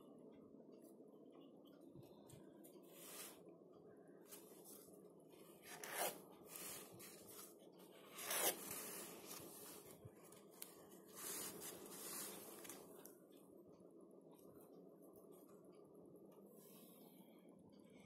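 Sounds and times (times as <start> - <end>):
paper and card rustling: 5.7 - 13.1
brushing swishes: 11.1 - 12.8.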